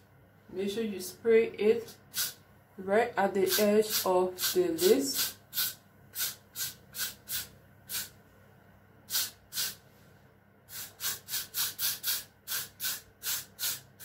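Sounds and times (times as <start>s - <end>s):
aerosol spray hisses: 2.1s - 2.4s, 3.5s - 8.1s, 9.1s - 9.8s, 10.7s - 13.9s.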